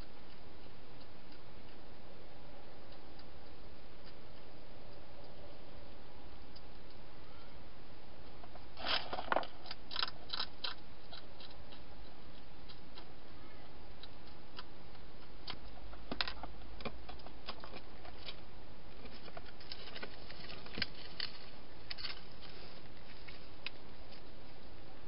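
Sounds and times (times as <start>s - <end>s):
hedgehog clicks and crackles: 8.5s - 13.2s
steady hiss: 20.1s - 25.0s.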